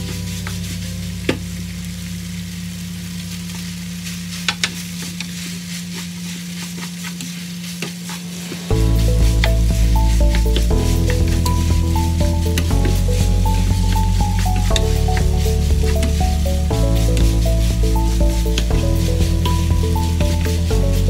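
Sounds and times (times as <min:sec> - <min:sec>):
low hum: 0:00.0 - 0:06.0, 0:08.2 - 0:21.0
chicken sizzling in a frying pan: 0:00.0 - 0:21.0
wooden spatula scraping a pan: 0:04.0 - 0:21.0
loud music: 0:08.4 - 0:21.0.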